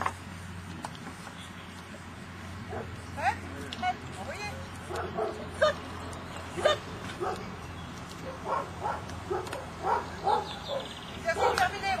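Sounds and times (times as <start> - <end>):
dog barking: 2.7 - 2.9, 4.9 - 5.4, 7.2 - 7.4, 8.2 - 11.7.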